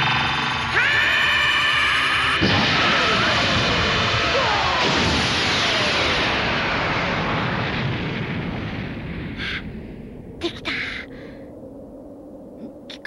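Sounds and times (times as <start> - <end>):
cartoon energy blast explosion: 2.4 - 9.4.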